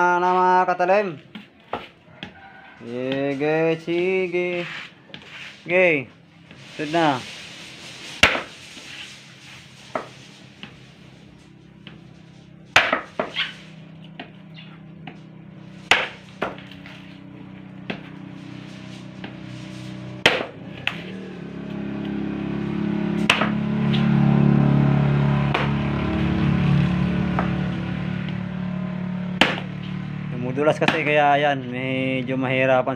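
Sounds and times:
machete chopping coconut: 8.2 - 8.5, 12.7 - 13.5, 15.9 - 17.0, 20.2 - 21.1, 23.2 - 24.0, 25.5 - 25.8, 29.4 - 29.8, 30.7 - 31.2.

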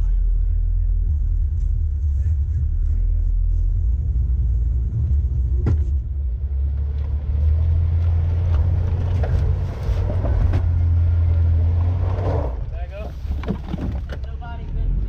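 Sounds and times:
off-road engine rumbling: 0.0 - 15.0.

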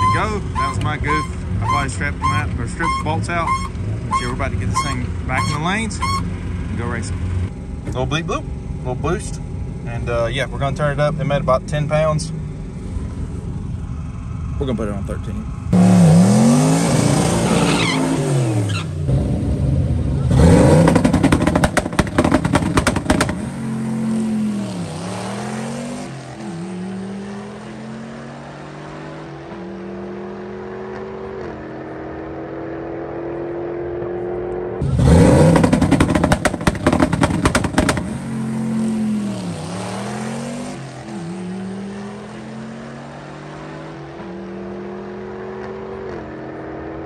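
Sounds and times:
car engine revving on drag strip: 15.5 - 47.0
crackling exhaust: 19.1 - 24.6, 34.8 - 39.4.

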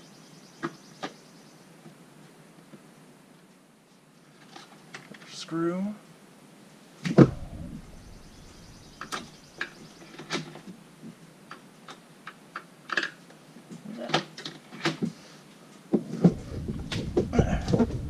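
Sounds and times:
low rumble: 7.2 - 9.9, 16.1 - 18.0.

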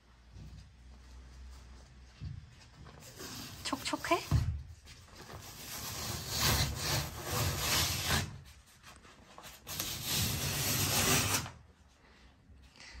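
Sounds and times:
wallpaper tearing: 5.2 - 8.7, 9.4 - 11.6.

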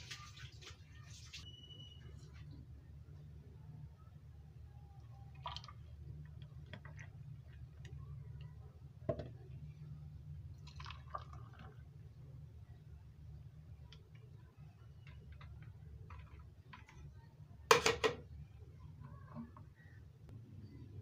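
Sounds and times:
liquid pouring: 5.2 - 7.9, 10.4 - 12.1.

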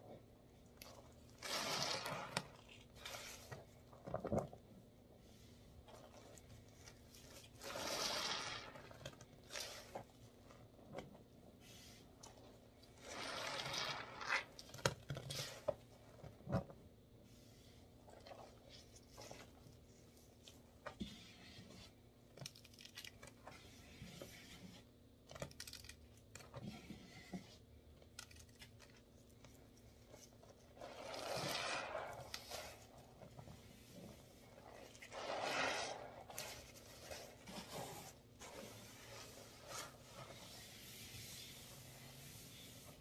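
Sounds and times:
sponge squelching in suds: 0.7 - 4.4, 5.2 - 14.6, 29.9 - 43.0.

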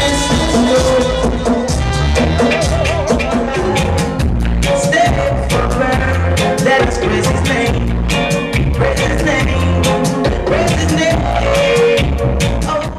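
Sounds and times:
dub reggae over sound system: 0.0 - 12.9.

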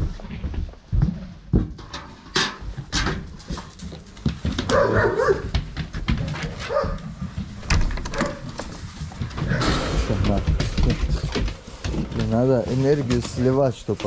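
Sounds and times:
dogs scuffling: 2.6 - 14.0
dog barking: 4.6 - 5.6, 6.6 - 7.1, 8.1 - 8.5.

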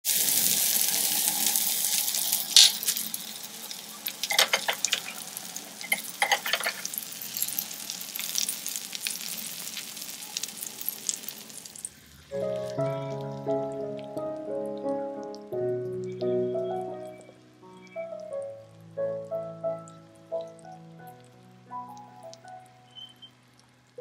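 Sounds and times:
meat sizzling on hot plate: 0.0 - 14.1
metal clinks against plate: 4.2 - 5.1, 5.8 - 7.6.

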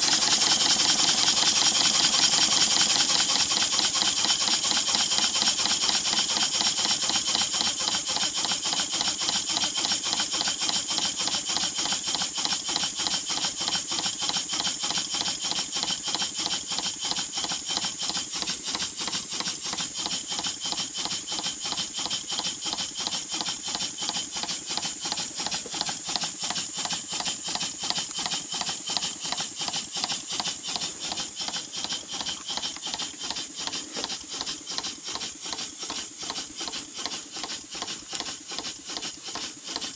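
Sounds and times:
steam engine chuffing: 0.0 - 39.9.

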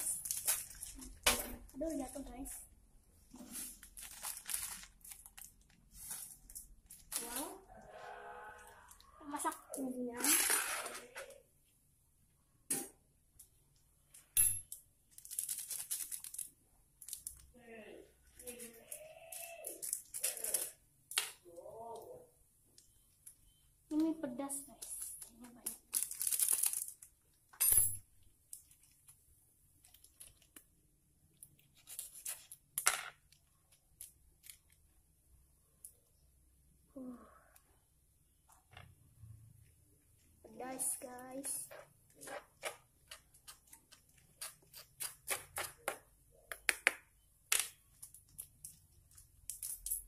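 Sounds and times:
plastic sachets crackling and tearing: 0.0 - 1.2, 3.5 - 7.6, 15.1 - 17.5, 18.4 - 20.8, 25.2 - 27.2, 31.3 - 34.8
plastic crinkling and rustling: 0.0 - 2.6, 3.3 - 7.6, 15.1 - 17.5, 24.7 - 27.4, 28.5 - 29.2, 29.8 - 34.8.

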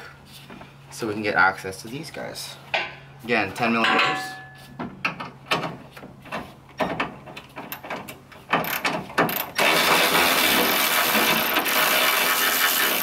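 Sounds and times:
electric ratchet clicking: 8.6 - 13.0
electric ratchet motor running: 8.7 - 13.0.

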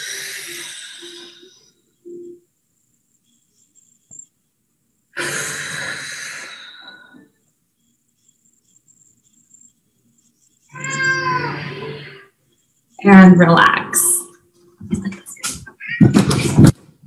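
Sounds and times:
woman breathing deeply: 5.2 - 7.3.

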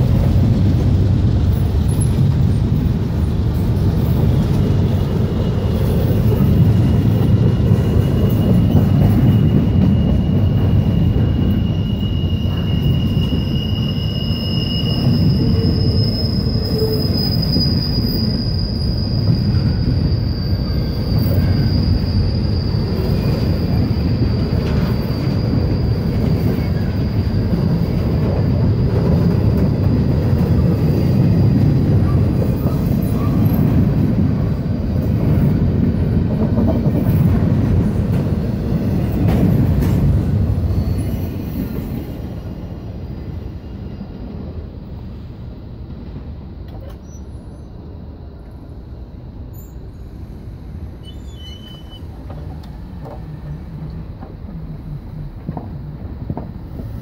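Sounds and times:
freight train cars rumbling: 0.0 - 57.0
high-pitched wheel squeals: 5.7 - 28.5, 40.6 - 44.0, 51.0 - 52.5.

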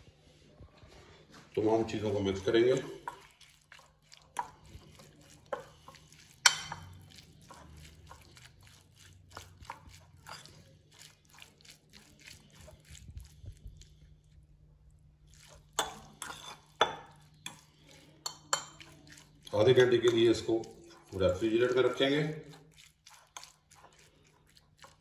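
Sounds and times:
wet squelching of marinating meat: 1.2 - 25.0
fork clinking on glass bowl: 6.4 - 7.0.

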